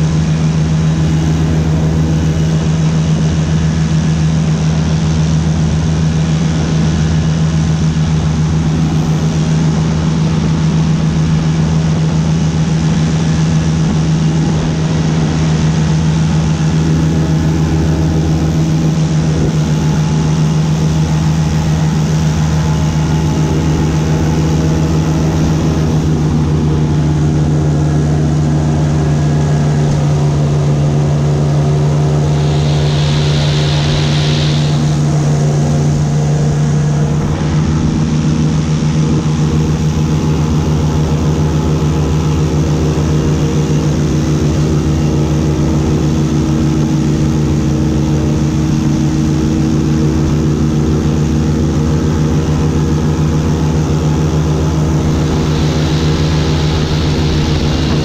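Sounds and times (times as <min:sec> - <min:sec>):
airboat engine drone: 0:00.0 - 0:58.0
brief hiss: 0:31.9 - 0:36.1, 0:54.5 - 0:58.0.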